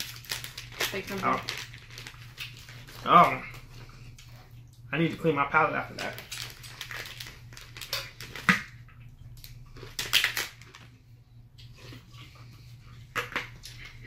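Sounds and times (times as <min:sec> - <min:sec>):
plastic wrapper crinkling: 0:00.0 - 0:03.7, 0:05.8 - 0:08.8, 0:09.4 - 0:11.0.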